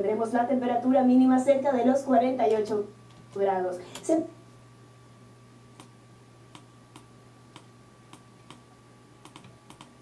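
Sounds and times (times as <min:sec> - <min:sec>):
low electrical hum: 0:00.0 - 0:10.0
sharp clicks: 0:09.2 - 0:10.0.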